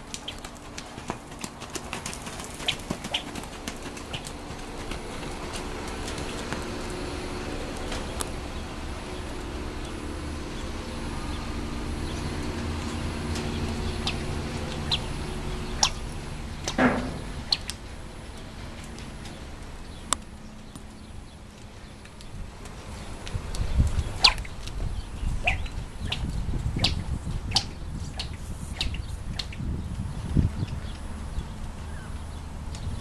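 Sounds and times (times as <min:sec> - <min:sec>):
hooves on sand: 0:00.0 - 0:16.0
steady low hum: 0:00.0 - 0:33.0
bird chirps: 0:11.2 - 0:16.8.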